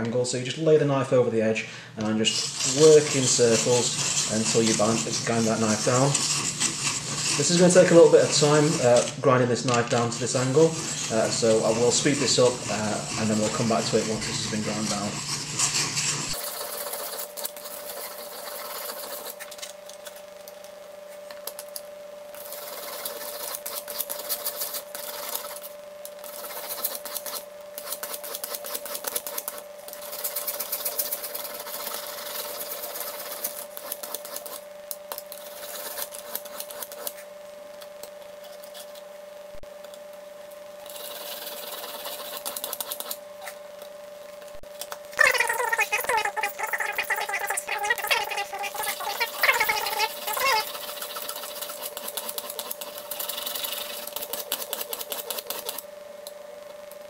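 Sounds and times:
faint steady hum: 0.0 - 57.0
stone grinding knife edge: 2.3 - 9.0, 10.4 - 20.2, 22.4 - 37.2, 40.8 - 43.6, 47.0 - 55.8.

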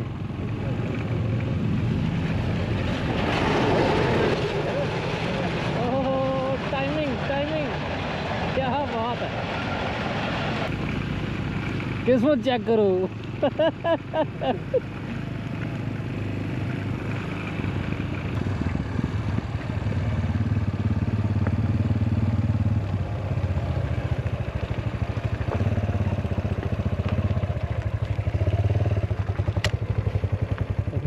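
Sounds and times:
motorcycle engine running: 10.7 - 31.0.

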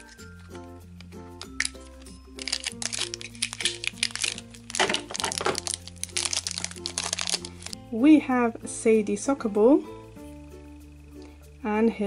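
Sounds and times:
plastic wrapper crinkling: 0.0 - 0.6, 1.4 - 7.8
background music: 0.0 - 12.0.

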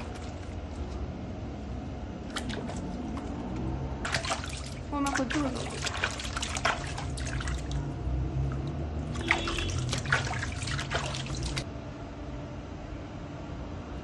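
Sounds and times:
water splashing in a plastic tub: 0.0 - 0.9, 2.2 - 11.7
low steady hum: 0.0 - 14.0.

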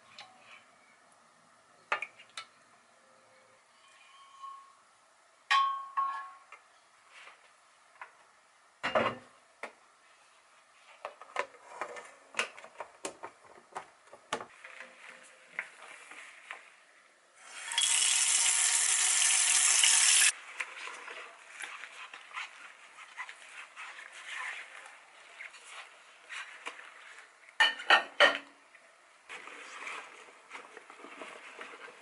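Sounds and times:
dishes and utensils clinking: 27.6 - 28.5.

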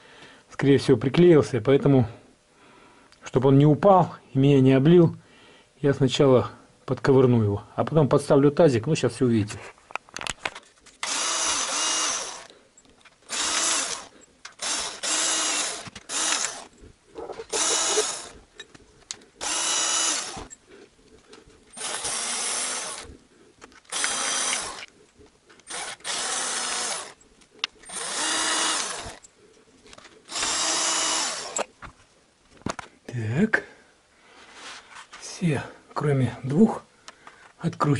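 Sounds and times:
cordless screwdriver running: 11.0 - 12.5, 13.2 - 16.8, 17.4 - 18.4, 19.4 - 20.6, 21.7 - 23.2, 23.8 - 24.9, 25.6 - 27.2, 27.8 - 29.3, 30.3 - 31.7.

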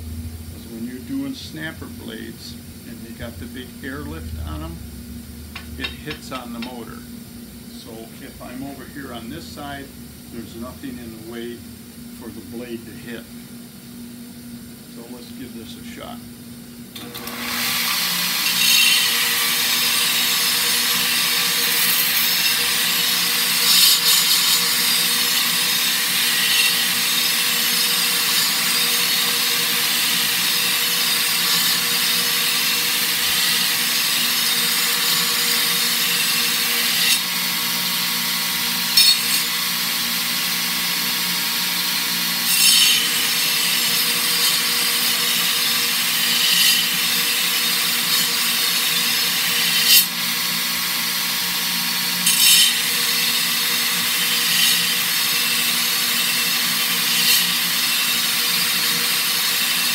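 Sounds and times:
belt sander grinding steel blade: 5.6 - 7.0, 17.0 - 59.9.

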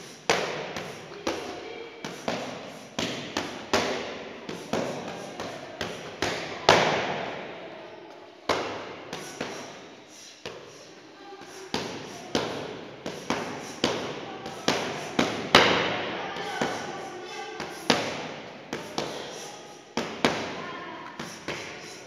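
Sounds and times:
boxing gloves hitting mitts: 0.2 - 7.3, 8.5 - 9.7, 11.7 - 16.9, 17.6 - 19.2, 20.0 - 20.6.

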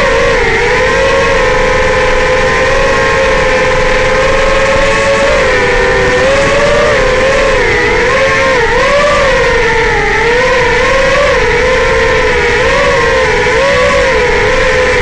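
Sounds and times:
quadcopter motors whining: 0.0 - 15.0.

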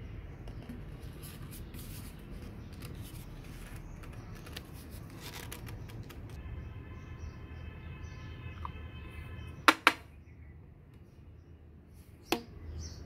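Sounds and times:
plastic pipe scraping and clicking: 0.4 - 1.1.

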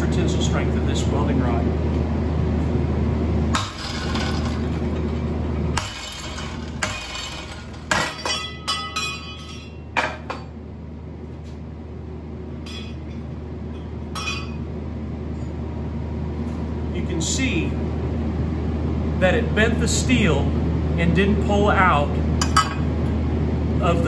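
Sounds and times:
steady low hum: 0.0 - 24.0
hammer striking metal: 3.5 - 4.6, 5.8 - 10.4.

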